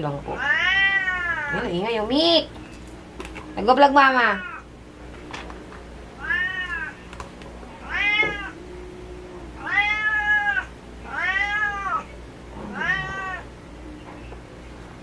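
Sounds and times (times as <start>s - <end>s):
cat meowing: 0.4s - 1.6s, 6.2s - 7.0s, 7.8s - 8.6s, 9.6s - 13.5s.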